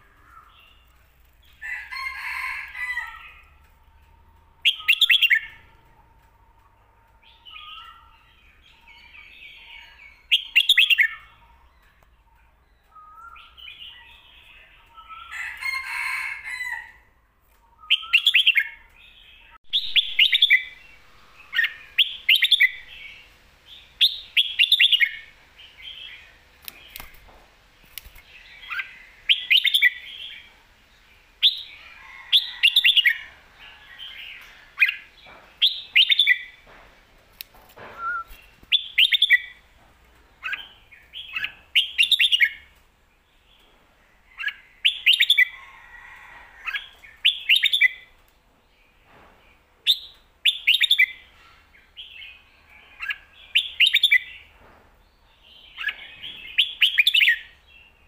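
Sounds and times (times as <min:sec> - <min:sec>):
bird singing chirpy phrases: 0:17.8 - 0:27.1.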